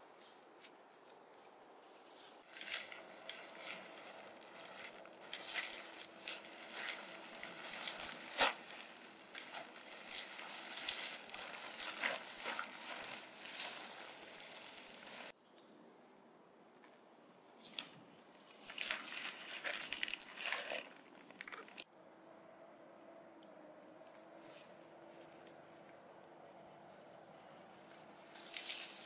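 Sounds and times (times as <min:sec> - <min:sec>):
tarp rustling and crinkling: 0:02.1 - 0:15.4, 0:17.6 - 0:21.9, 0:27.8 - 0:29.0
tarp snap: 0:02.4 - 0:15.3.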